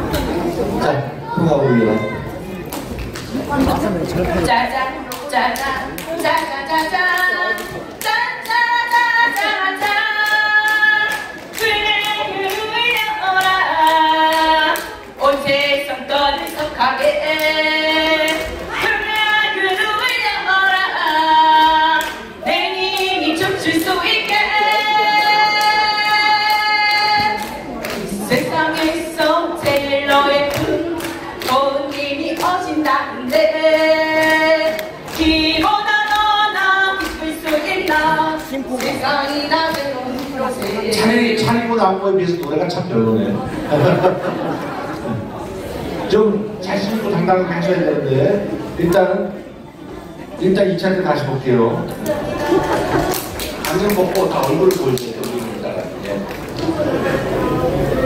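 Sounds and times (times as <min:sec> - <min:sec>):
steady beat of claps: 0:02.6 - 0:41.6, 0:51.9 - 0:56.9
person singing through microphone: 0:04.4 - 0:41.9.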